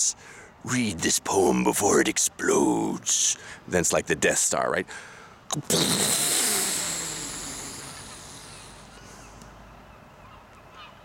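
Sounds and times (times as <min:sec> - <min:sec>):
person imitating explosion with mouth: 0:05.5 - 0:09.0.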